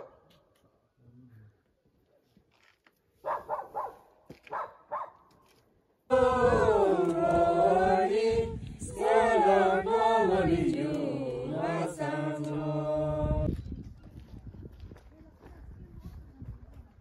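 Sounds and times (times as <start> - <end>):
people singing together: 6.1 - 13.5.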